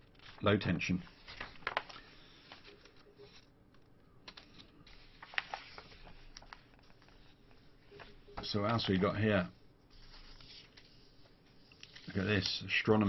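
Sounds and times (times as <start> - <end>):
paper pages rustling: 0.0 - 12.7
paper crackles and taps: 1.2 - 3.0, 3.7 - 7.3.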